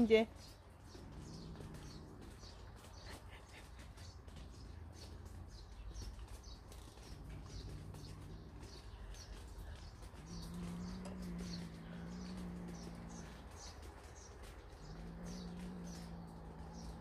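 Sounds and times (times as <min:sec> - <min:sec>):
sparrow chirping: 0:00.0 - 0:17.0.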